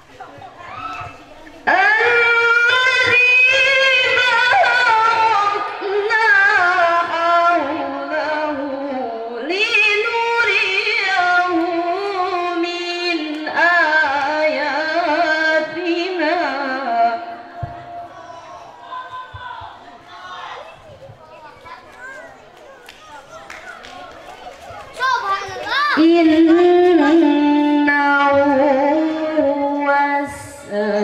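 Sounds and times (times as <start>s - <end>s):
woman chanting a recitation: 1.6s - 17.6s, 26.0s - 31.0s.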